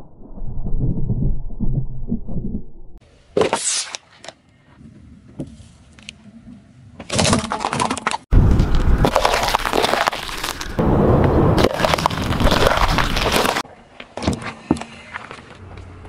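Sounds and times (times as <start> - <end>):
coconut shell cracking: 8.6 - 10.8.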